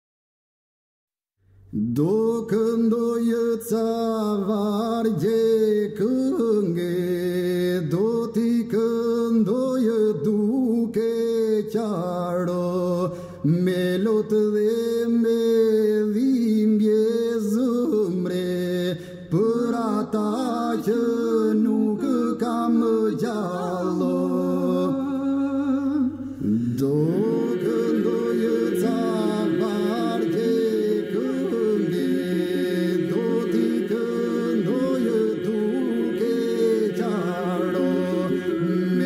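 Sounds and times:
person singing a lament: 14.8s - 39.0s
low steady drone: 26.6s - 39.0s.

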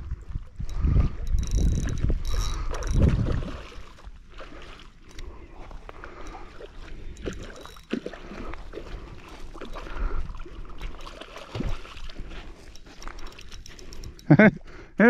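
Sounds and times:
fish splashing in water: 2.6s - 13.7s.

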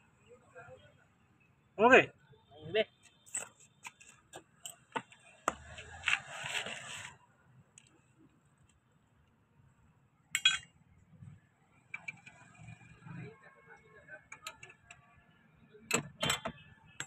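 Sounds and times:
rustling scrape: 5.8s - 7.2s
metal tools clicking and knocking: 10.4s - 10.7s.

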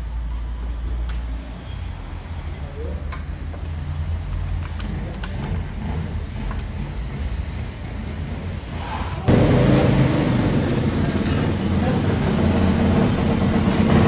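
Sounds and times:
low workshop hum: 0.0s - 14.0s
loud rough sound: 8.1s - 14.0s.

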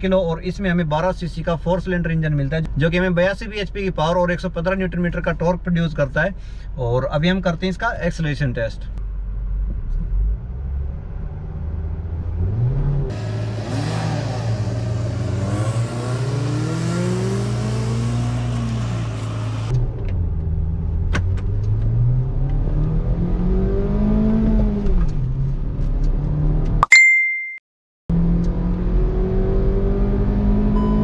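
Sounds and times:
car engine accelerating hard: 9.8s - 26.7s, 28.1s - 31.0s.

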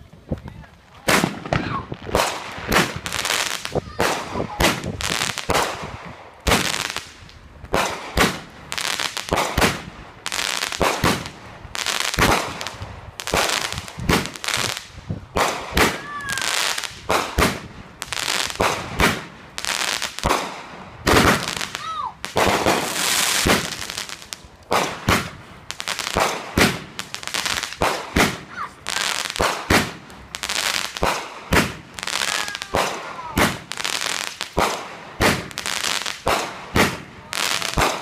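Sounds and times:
firework crackling: 0.0s - 38.0s
firework bangs: 1.0s - 38.0s.

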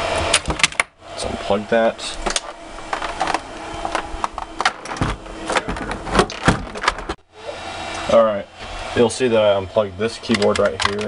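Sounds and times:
computer humming: 0.0s - 11.0s
keyboard plastic clicks: 10.3s - 11.0s.

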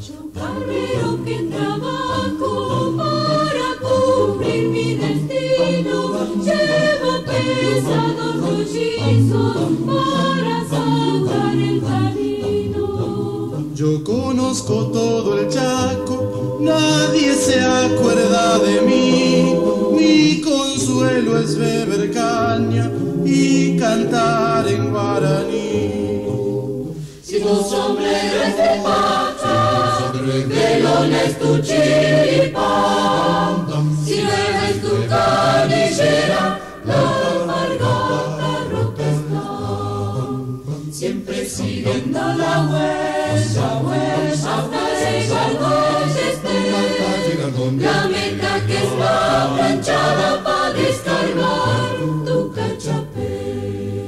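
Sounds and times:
choir singing unaccompanied: 0.0s - 54.0s.

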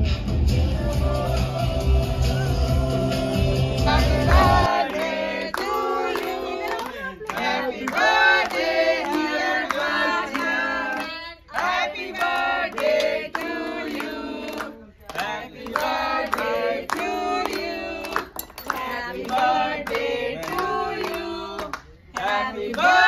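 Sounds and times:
group of people singing: 0.4s - 23.0s.

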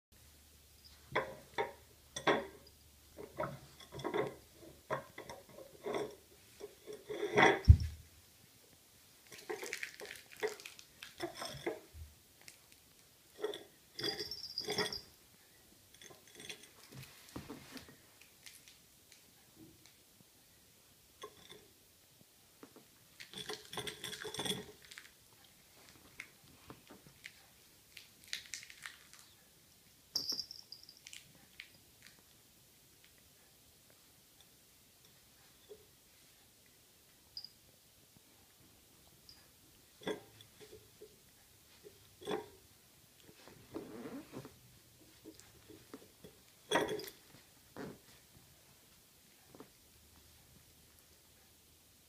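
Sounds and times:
glass dish rattling on wooden floor: 13.4s - 15.1s.

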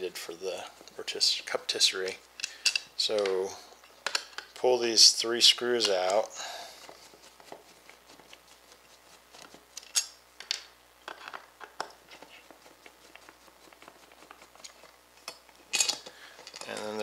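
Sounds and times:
screwdriver clicks and scrapes: 14.6s - 17.0s.

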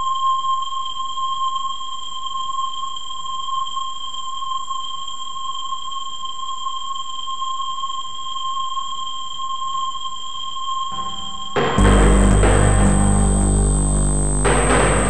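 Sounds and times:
high-pitched electronic drone: 11.0s - 15.0s.

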